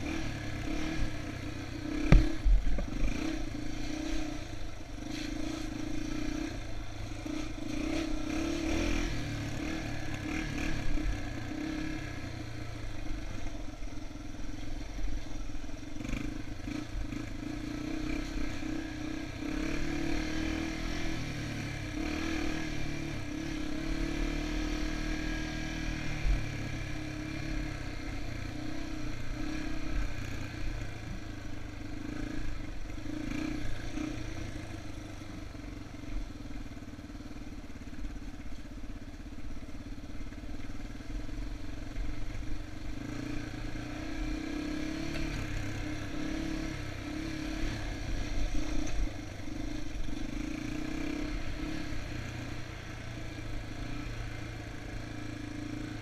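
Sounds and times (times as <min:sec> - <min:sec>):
motorcycle engine revving: 0:00.0 - 0:56.0
sharp knock: 0:02.0 - 0:02.9.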